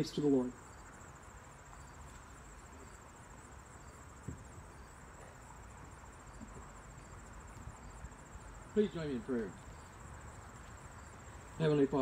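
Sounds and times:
insects chirping in a pulsing trill: 0:00.0 - 0:12.0
low thump: 0:04.2 - 0:04.5.

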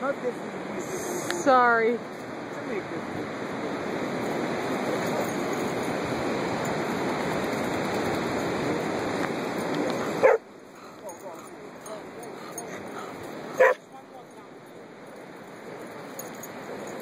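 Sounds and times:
surf and wind rushing: 0:00.0 - 0:17.0
dog yelp: 0:10.2 - 0:10.4, 0:13.6 - 0:13.8.

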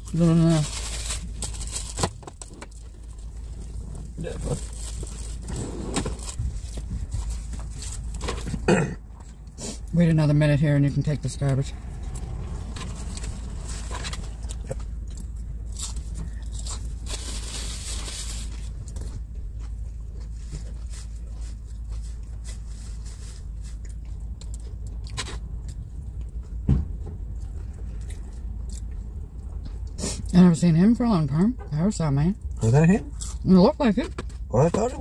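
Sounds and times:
low rumble inside a vehicle: 0:00.0 - 0:35.0
thump: 0:26.6 - 0:27.0.

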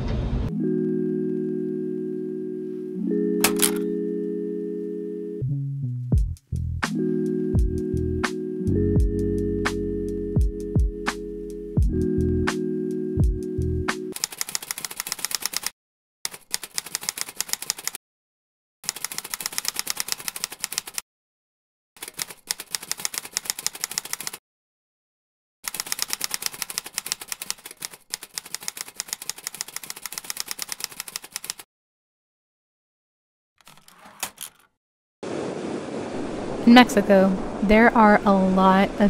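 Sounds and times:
typewriter keys clicking: 0:03.4 - 0:03.8, 0:14.1 - 0:15.7, 0:16.3 - 0:18.0, 0:18.9 - 0:21.0, 0:22.0 - 0:24.4, 0:25.7 - 0:31.6.

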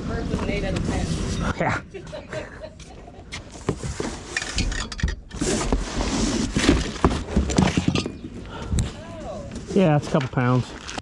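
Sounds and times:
cardboard rustling and scraping: 0:03.3 - 0:11.0.

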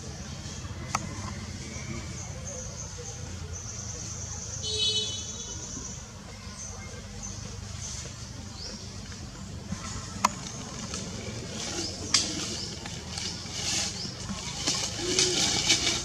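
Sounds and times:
dry leaves rustling: 0:06.3 - 0:16.0.

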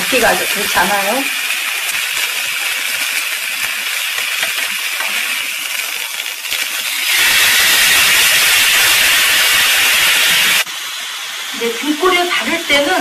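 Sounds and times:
fish sizzling in a frying pan: 0:00.0 - 0:13.0
sauce sizzling in hot pan: 0:00.0 - 0:13.0.

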